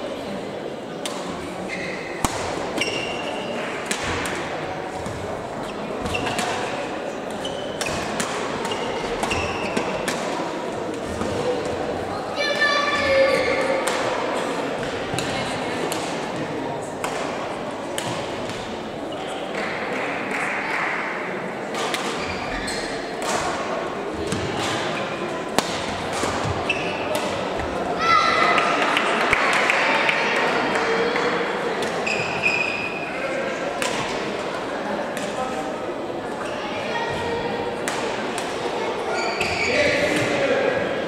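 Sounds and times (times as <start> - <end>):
murmur of voices: 0.0 - 41.0
shoe squeaks on court floor: 1.6 - 2.2, 2.8 - 3.5, 5.6 - 6.6, 7.4 - 8.1, 8.7 - 9.9, 22.1 - 23.1, 26.6 - 27.1, 32.0 - 33.1, 39.1 - 40.1
rackets striking shuttlecocks: 2.2 - 3.2, 24.3 - 27.7
rackets hitting shuttlecocks: 2.2 - 5.2, 17.0 - 18.8, 23.2 - 27.7, 33.8 - 34.3.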